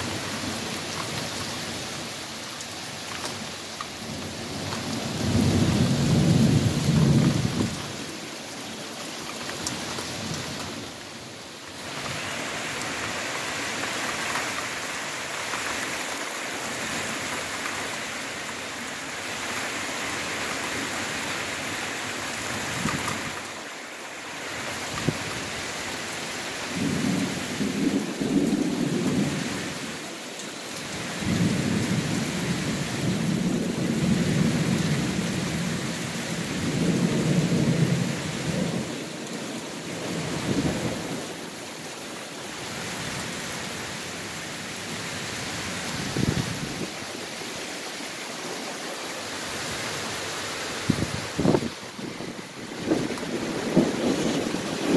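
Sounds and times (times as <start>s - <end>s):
heavy rain pouring: 0.0s - 54.9s
thunder rumbling: 5.2s - 7.8s, 50.8s - 54.9s.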